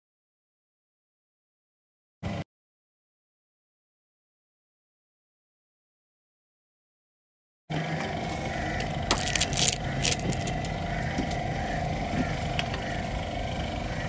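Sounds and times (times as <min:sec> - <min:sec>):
mechanical hum: 0:07.7 - 0:14.0
sharp clicks and rustling: 0:08.8 - 0:11.4.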